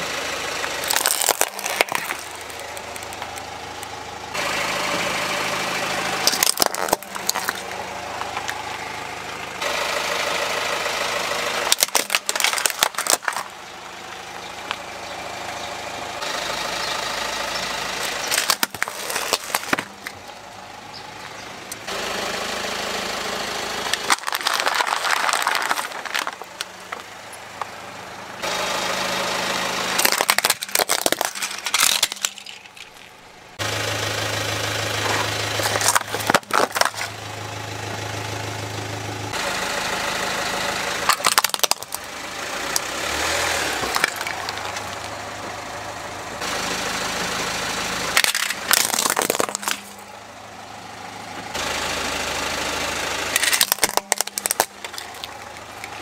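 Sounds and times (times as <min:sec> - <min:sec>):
car engine idling: 0:00.0 - 0:56.0
plastic toys cracking under tyre: 0:00.6 - 0:03.9, 0:06.2 - 0:08.6, 0:11.6 - 0:13.6, 0:18.0 - 0:20.3, 0:23.9 - 0:27.1, 0:30.0 - 0:33.2, 0:35.2 - 0:37.2, 0:41.1 - 0:42.1, 0:43.7 - 0:45.2, 0:48.1 - 0:50.0, 0:53.3 - 0:56.0.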